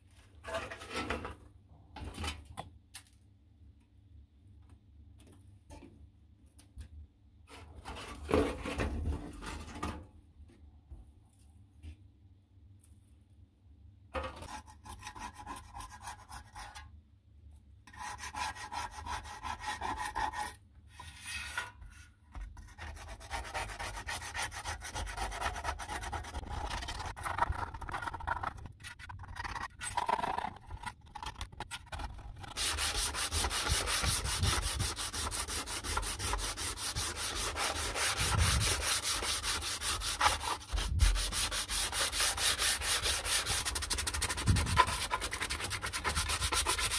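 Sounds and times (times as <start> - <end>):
hand sanding sheet metal: 17.9 - 20.6, 22.7 - 29.7, 31.4 - 46.9.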